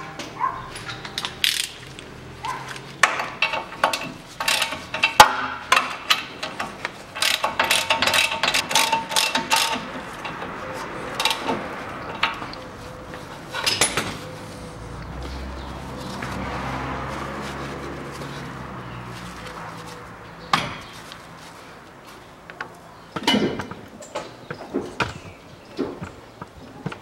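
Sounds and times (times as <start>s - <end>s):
ratchet wrench clicking: 1.2s - 2.0s, 3.0s - 10.4s.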